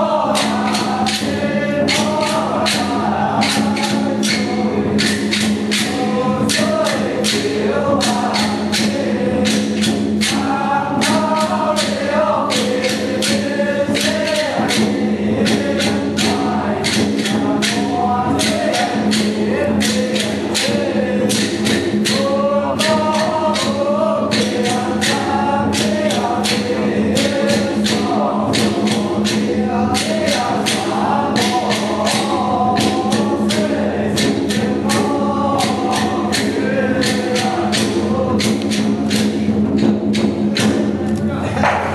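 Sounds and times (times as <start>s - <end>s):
dense percussion strikes: 0.0s - 41.9s.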